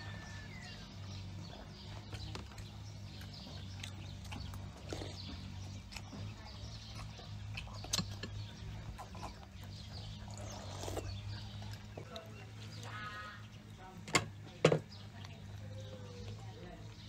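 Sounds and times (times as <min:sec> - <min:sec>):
chewing and mouth clicks: 0:01.5 - 0:12.8.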